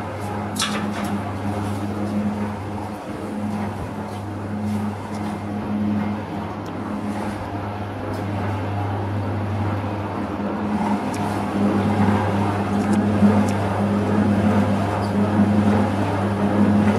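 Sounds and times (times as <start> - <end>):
low motor hum: 0.0 - 16.9.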